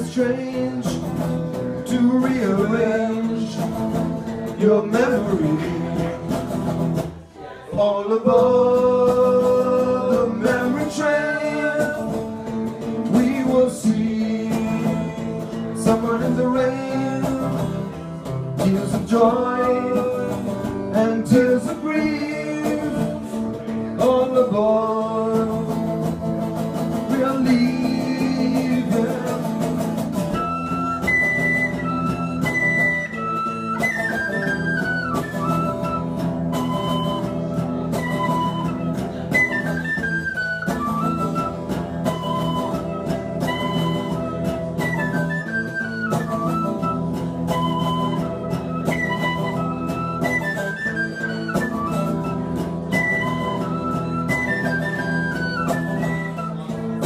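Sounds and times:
guitar accompaniment: 0.0s - 57.0s
tin whistle melody: 30.1s - 57.0s.

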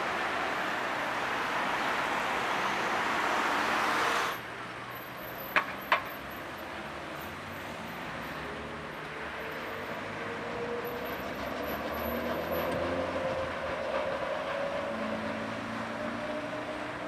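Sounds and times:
tram running noise: 10.8s - 17.0s.

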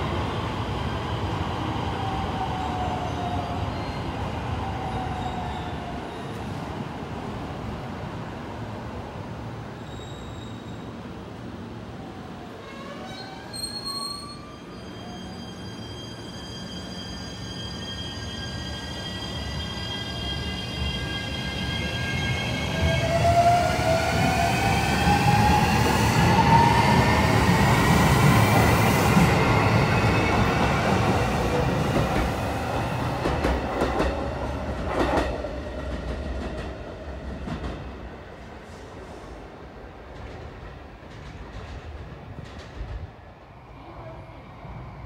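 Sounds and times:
train wheels rumbling: 18.2s - 43.3s.

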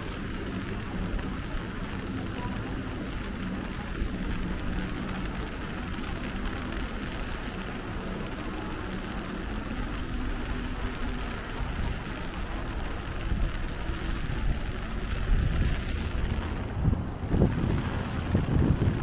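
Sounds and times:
rain hissing: 0.0s - 19.0s
low rumble: 9.1s - 19.0s.

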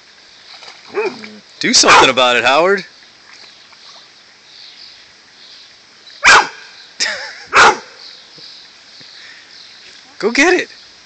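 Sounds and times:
dog barking: 1.8s - 2.2s, 6.2s - 6.6s, 7.5s - 8.0s.

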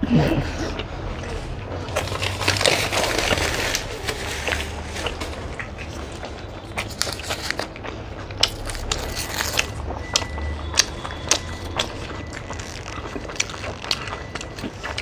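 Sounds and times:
people chewing crunchy food: 0.0s - 15.0s
paper wrappers rustling: 1.8s - 7.8s, 11.8s - 15.0s.

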